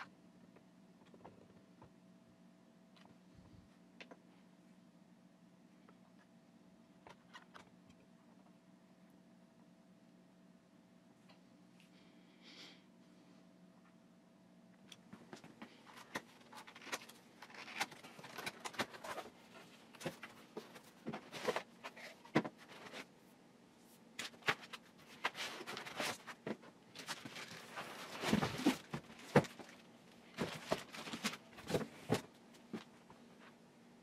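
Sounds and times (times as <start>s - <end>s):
cardboard and plastic rustling: 15.2s - 23.1s, 24.2s - 33.5s.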